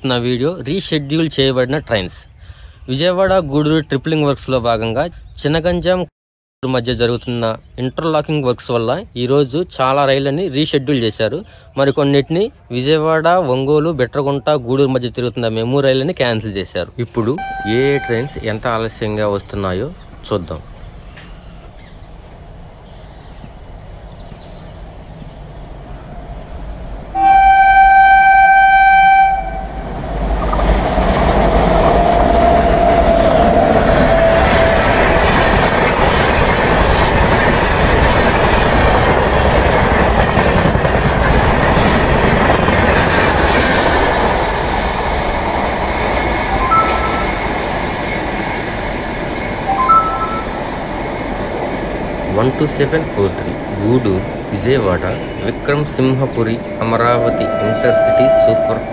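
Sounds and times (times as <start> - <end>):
locomotive horn blast: 17.4 - 18.6, 27.2 - 29.9, 32.0 - 35.0, 46.5 - 47.4, 49.7 - 50.6, 56.6 - 58.9
train wheels rushing on rail: 29.1 - 58.9.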